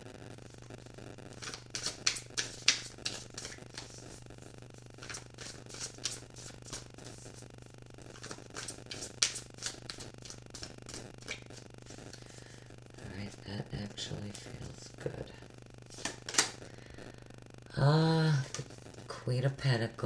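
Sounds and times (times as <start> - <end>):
cards being shuffled: 1.3 - 4.2, 4.9 - 7.4, 8.1 - 12.3, 15.9 - 16.6.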